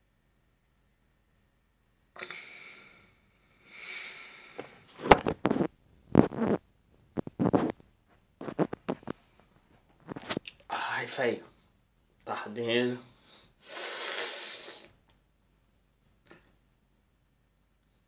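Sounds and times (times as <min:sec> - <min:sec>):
man breathing and sniffing: 0:02.2 - 0:06.6, 0:13.1 - 0:15.0.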